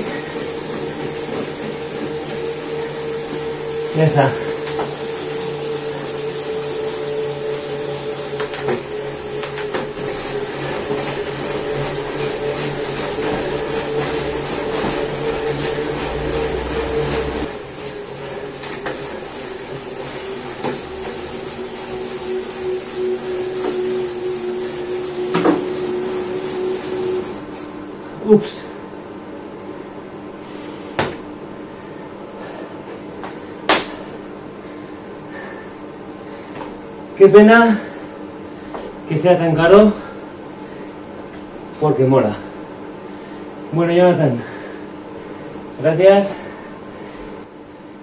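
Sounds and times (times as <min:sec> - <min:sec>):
trainer motor whine: 0:00.0 - 0:28.4.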